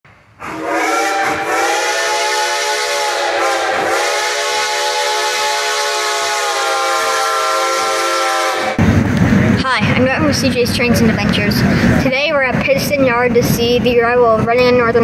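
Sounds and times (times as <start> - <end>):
steam hissing: 0.3 - 9.6
steam locomotive whistle: 0.4 - 8.8.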